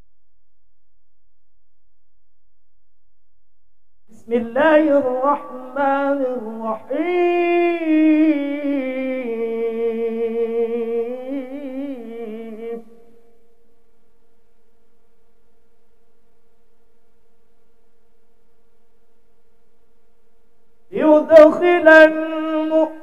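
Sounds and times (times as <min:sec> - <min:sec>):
faint steady hum: 0:00.0 - 0:23.0
man chanting into a microphone: 0:04.1 - 0:12.9, 0:20.9 - 0:23.0.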